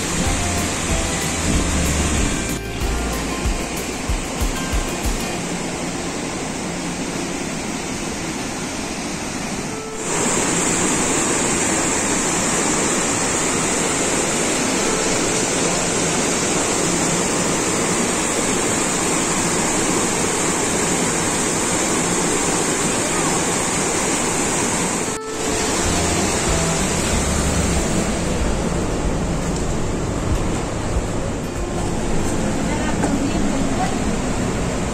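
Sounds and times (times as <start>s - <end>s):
waterfall rushing: 0.0s - 7.8s, 9.3s - 30.0s.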